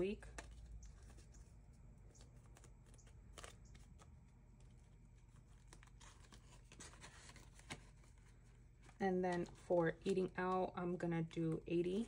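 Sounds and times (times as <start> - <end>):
paper banknote rustling: 0.0 - 10.8.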